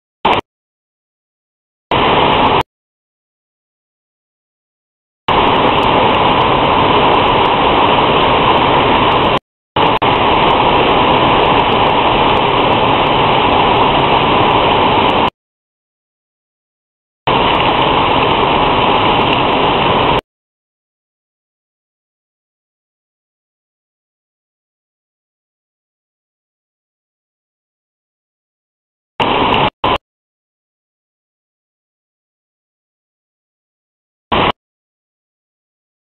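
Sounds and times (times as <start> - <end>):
heavy rain: 1.9 - 2.6, 5.3 - 15.3, 17.3 - 20.2, 29.2 - 30.0, 34.3 - 34.6.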